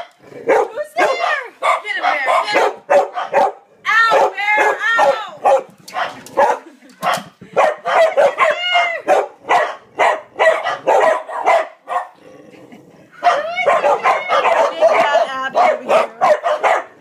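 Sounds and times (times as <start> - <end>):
dogs barking rapidly: 0.0 - 12.2, 13.2 - 17.0
dog howling yelp: 13.2 - 15.2.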